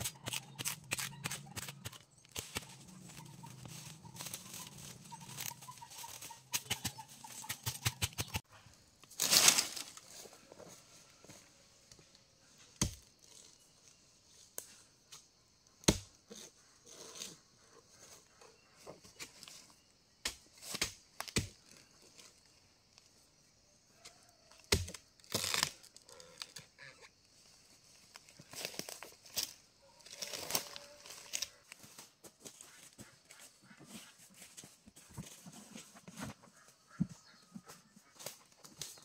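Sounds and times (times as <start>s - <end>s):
dry vegetation cracking: 9.0s - 10.1s, 24.7s - 26.6s.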